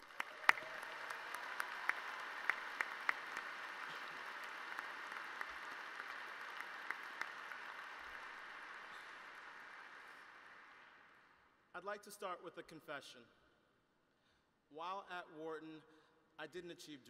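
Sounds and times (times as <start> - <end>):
large audience applauding: 0.0 - 11.2.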